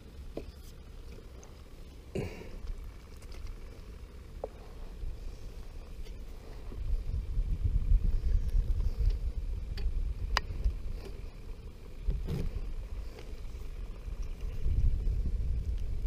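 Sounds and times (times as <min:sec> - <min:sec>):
wind buffeting microphone: 0:04.9 - 0:16.0
microphone handling noise: 0:12.0 - 0:13.4.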